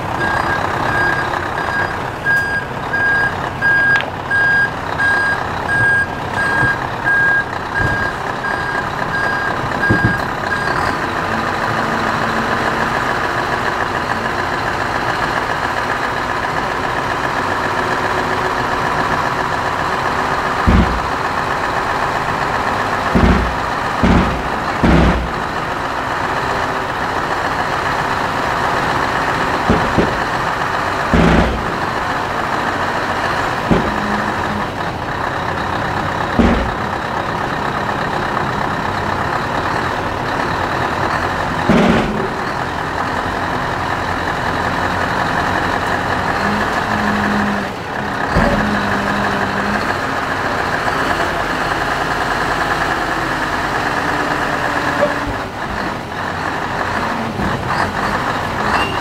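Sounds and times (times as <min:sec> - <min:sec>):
diesel truck engine running: 0:00.0 - 0:59.0
loud metallic clanks and bangs: 0:04.9 - 0:16.2, 0:18.3 - 0:47.4.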